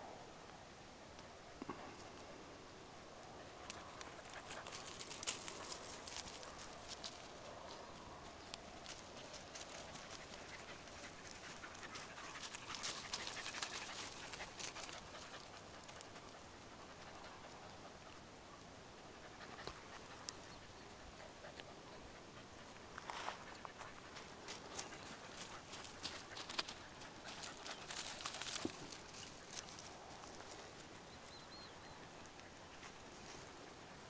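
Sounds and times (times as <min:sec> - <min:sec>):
dog panting: 0:09.3 - 0:28.6.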